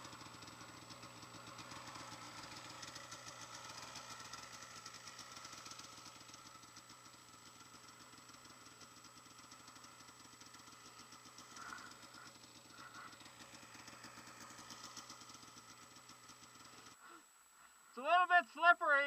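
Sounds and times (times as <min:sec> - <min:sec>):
muffled snowmobile engine: 0:00.0 - 0:19.0.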